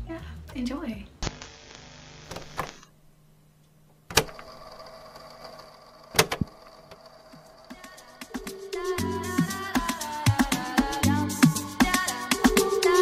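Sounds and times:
tape static burst: 0:01.2 - 0:02.9
video player whirring hum: 0:01.2 - 0:09.6
video player mechanical clunks: 0:04.1 - 0:04.5, 0:06.1 - 0:07.0.

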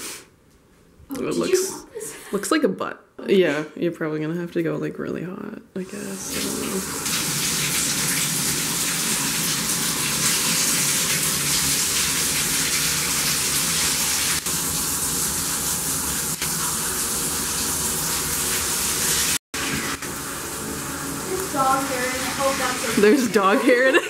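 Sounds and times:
water pouring into bathtub: 0:06.0 - 0:23.5.

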